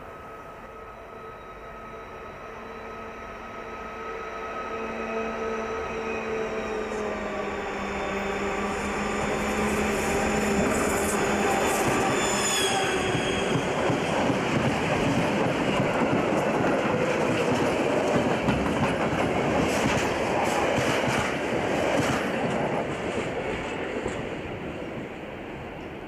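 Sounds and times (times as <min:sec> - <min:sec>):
train wheels rolling on rails: 0:06.5 - 0:26.0
train wheels knocking: 0:13.0 - 0:23.1.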